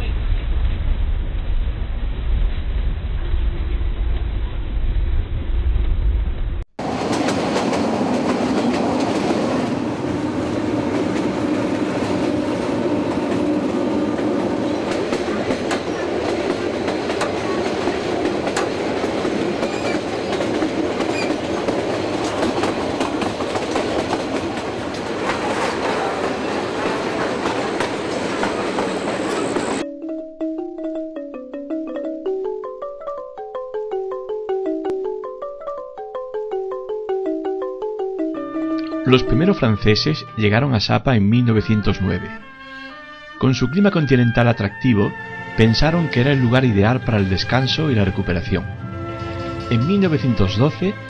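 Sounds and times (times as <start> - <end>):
train rolling rumble: 0.0 - 29.8
wheels clacking over rail joints: 6.8 - 29.8
marimba-like music: 29.8 - 40.2.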